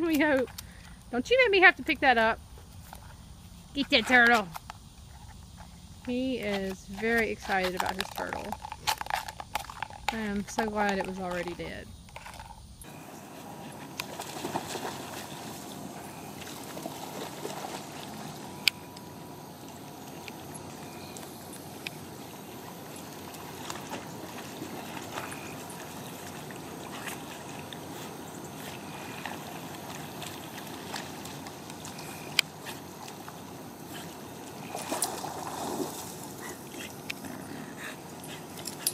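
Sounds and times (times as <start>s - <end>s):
steady hiss: 0.0s - 38.9s
dogs splashing in water: 12.9s - 18.9s, 19.6s - 38.9s.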